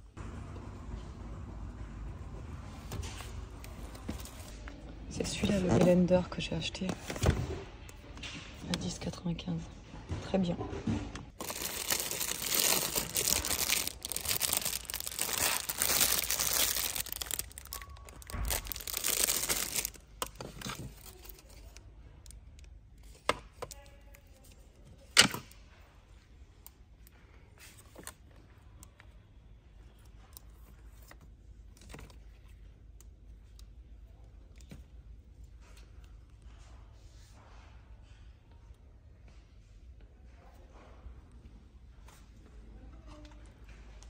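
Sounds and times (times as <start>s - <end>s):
plastic packaging crinkling: 11.3s - 21.8s.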